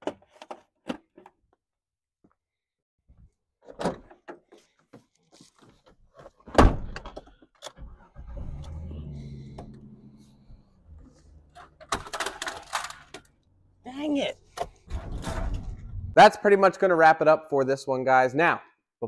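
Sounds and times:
car engine idling: 7.8s - 14.8s
plastic clattering on gravel: 11.8s - 13.3s.

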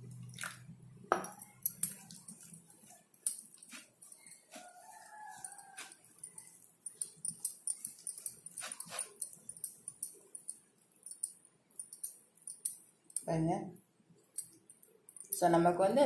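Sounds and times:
fingers squishing wet paste: 1.8s - 10.2s.

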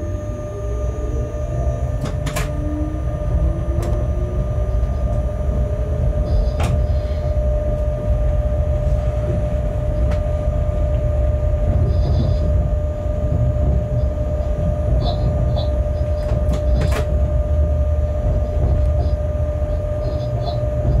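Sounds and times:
constant whine: 0.0s - 21.0s
locomotive rumble: 0.0s - 21.0s.

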